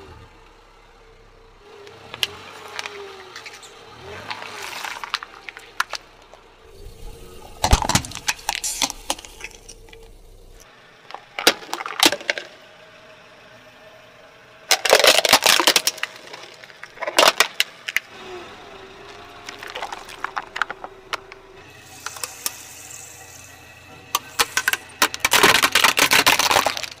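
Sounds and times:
plastic toys crunching under tyre: 2.2 - 6.4, 7.4 - 10.2, 11.1 - 12.6, 14.7 - 18.1, 19.0 - 23.2, 24.1 - 27.0.

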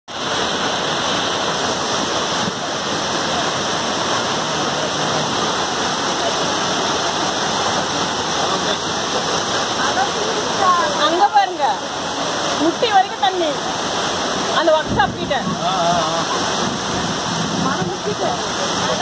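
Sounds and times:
floodwater rushing: 0.1 - 19.0
heavy rain falling: 0.1 - 19.0.

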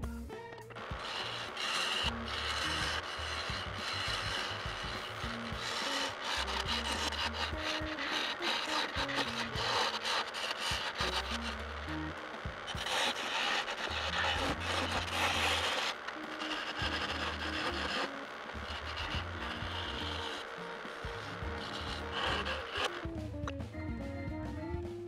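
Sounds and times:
quiet background music: 0.0 - 25.0
lathe tool shaving wood: 0.7 - 23.3
stepping bass line: 2.0 - 5.8, 6.4 - 8.0, 18.6 - 20.3, 21.0 - 25.0.

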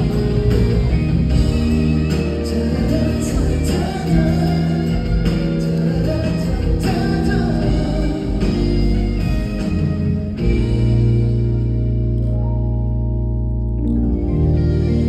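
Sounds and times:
live band with guitar: 0.0 - 15.0
man singing: 2.0 - 9.4.

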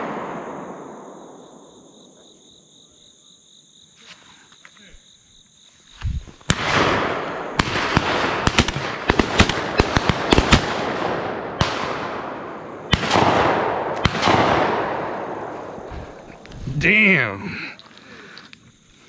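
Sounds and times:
shotgun shots echoing: 0.0 - 1.5, 6.5 - 16.3.

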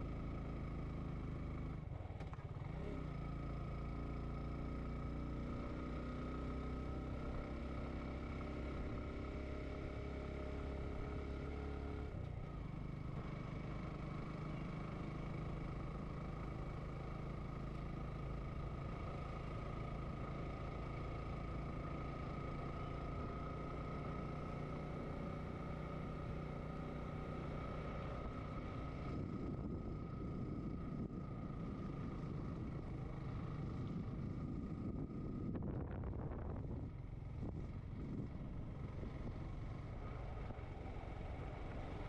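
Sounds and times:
engine whine: 0.0 - 42.0
motorcycle engine running: 0.0 - 42.0
wind on microphone: 34.1 - 38.4.

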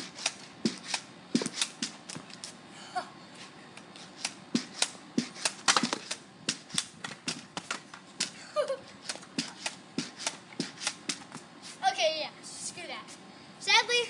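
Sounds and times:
pogo stick bouncing on concrete: 0.0 - 2.6, 3.8 - 8.4, 9.0 - 11.4.

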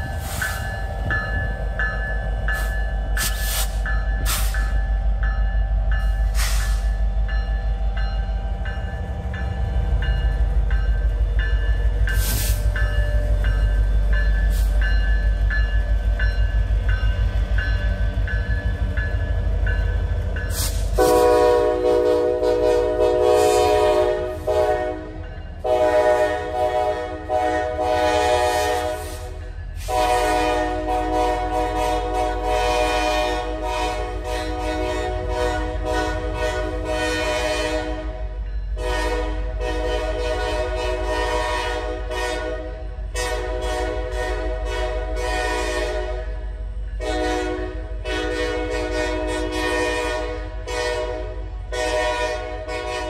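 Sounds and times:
crossing bell dinging: 0.0 - 21.8
diesel locomotives rumbling past: 0.0 - 53.0
locomotive air horn blasts: 20.6 - 46.4, 47.0 - 53.0.

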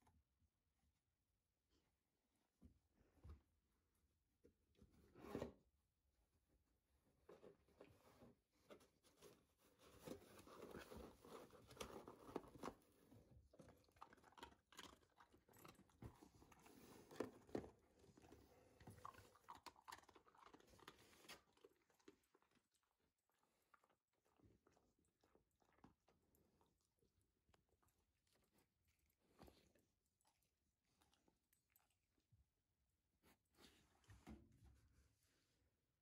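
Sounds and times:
dog chewing food: 18.2 - 26.0.

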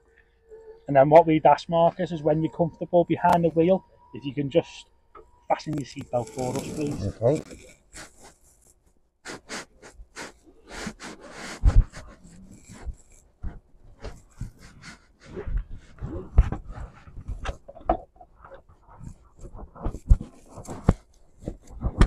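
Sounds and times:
panting breaths: 9.3 - 17.4.

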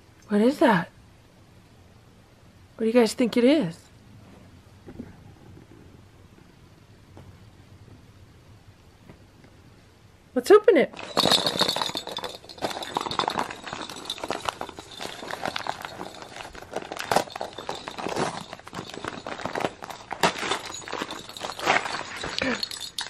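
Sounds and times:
wrapping paper crinkling: 12.2 - 23.0.

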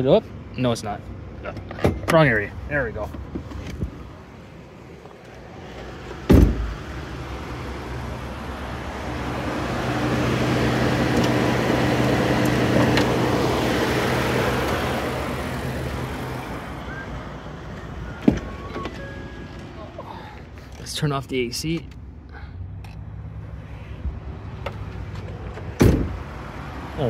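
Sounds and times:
truck door shutting: 6.1 - 6.8, 18.2 - 19.6, 24.6 - 26.2.

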